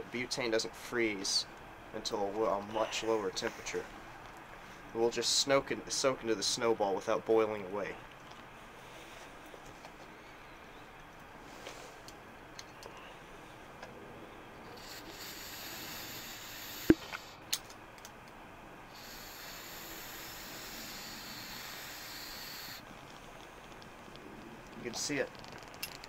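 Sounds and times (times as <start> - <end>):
butane canister hissing: 14.6 - 17.5, 18.9 - 22.9.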